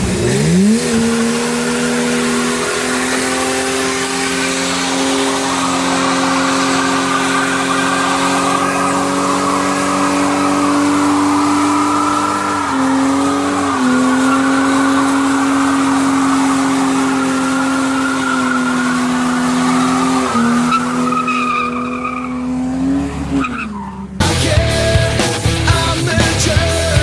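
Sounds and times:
car engine revving: 0.0s - 27.0s
tyres spinning and squealing: 0.6s - 24.2s
rock music: 2.4s - 18.4s, 24.2s - 27.0s.

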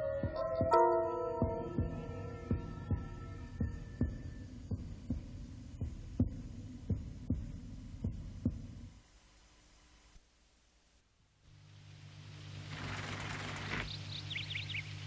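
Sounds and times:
theme music held tones: 0.0s - 4.6s
pulse of deep thuds: 1.4s - 8.9s.

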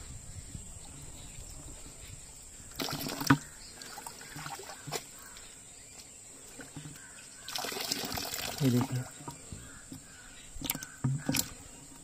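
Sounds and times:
water splashing in plastic bucket: 2.7s - 5.4s, 6.5s - 12.0s.

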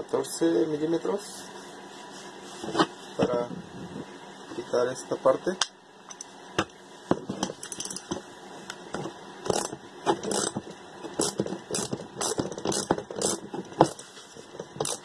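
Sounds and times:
metallic clinks and rattles: 7.4s - 8.1s.

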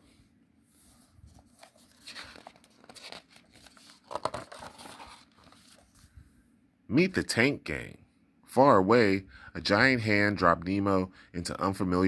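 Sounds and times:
book pages rustling: 0.7s - 6.2s.

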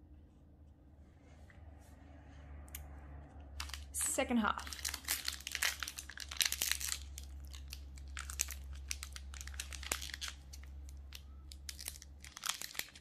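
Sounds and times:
foil wrapper crinkling: 3.6s - 13.0s.

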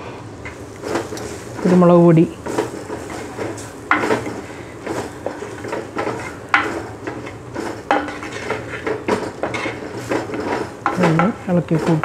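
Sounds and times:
spatula scraping a clay pot: 2.6s - 12.0s.

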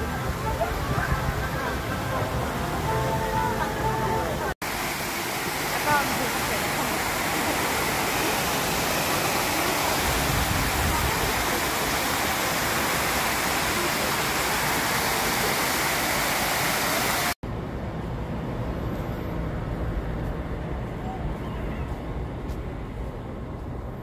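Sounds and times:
water falling down fountain: 0.0s - 17.4s
outdoor background noise: 0.0s - 24.0s.

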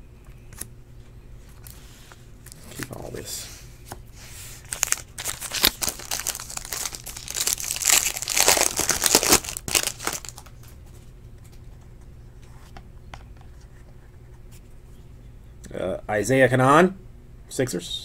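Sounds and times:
foil wrapper crinkling: 4.6s - 10.8s.

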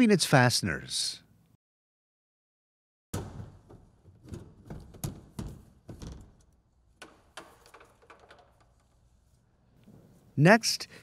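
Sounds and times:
hand tools clicking and knocking: 3.6s - 9.1s.

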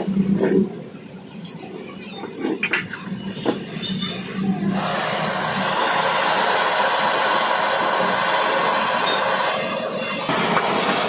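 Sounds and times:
gas torch hissing: 4.6s - 11.0s.

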